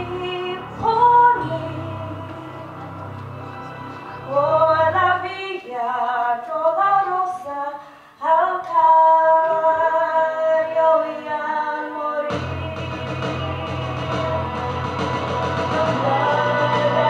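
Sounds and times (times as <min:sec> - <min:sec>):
woman singing into a microphone: 0:00.0 - 0:02.7, 0:04.3 - 0:14.8, 0:15.6 - 0:17.0
low musical accompaniment: 0:00.0 - 0:05.8, 0:09.3 - 0:17.0.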